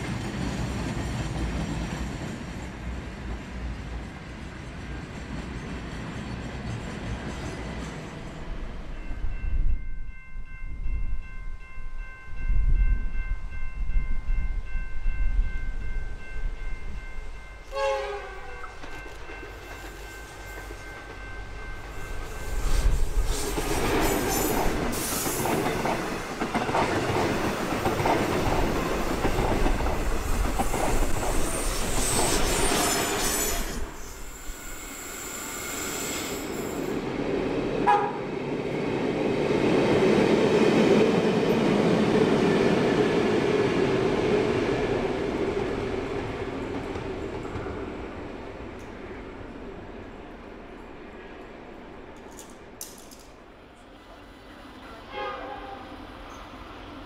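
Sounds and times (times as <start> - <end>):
train wheels on rails: 0.0 - 55.3
locomotive horn: 17.6 - 18.9, 37.8 - 38.3, 54.9 - 56.1.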